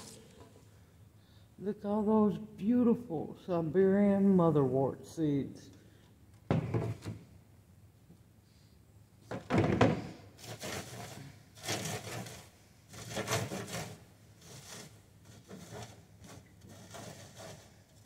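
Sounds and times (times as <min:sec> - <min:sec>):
seed heads rubbed over metal mesh: 0:10.4 - 0:18.0.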